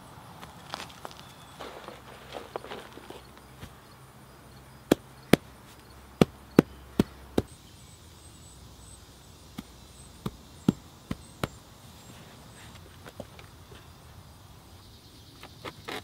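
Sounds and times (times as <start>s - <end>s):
hands patting soil: 0.4s - 7.6s, 9.3s - 14.2s.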